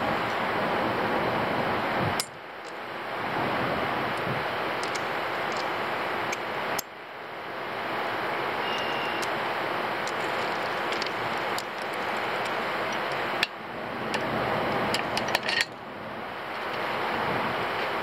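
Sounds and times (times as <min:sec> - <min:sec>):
steady rushing noise: 0:00.0 - 0:18.0
hand tool clicks and taps on metal: 0:04.8 - 0:05.7, 0:14.9 - 0:15.8.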